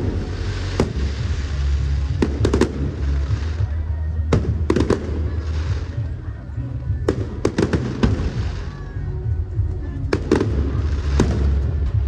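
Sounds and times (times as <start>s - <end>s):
fireworks exploding: 0.0s - 12.0s.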